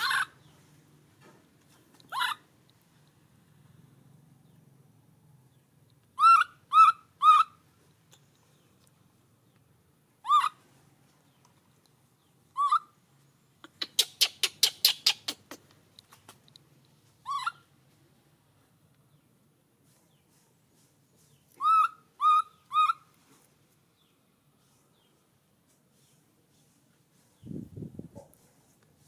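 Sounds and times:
baby monkey crying: 0.0s - 0.4s, 2.1s - 2.5s, 6.2s - 7.6s, 10.2s - 10.6s, 12.5s - 13.0s, 17.2s - 17.7s, 21.6s - 23.0s.

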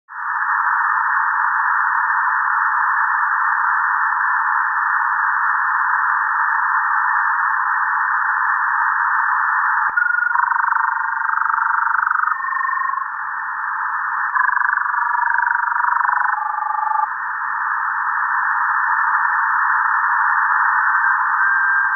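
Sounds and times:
radio static hiss: 0.1s - 21.9s
whistling signal hopping pitches: 9.4s - 13.2s, 13.8s - 17.1s.

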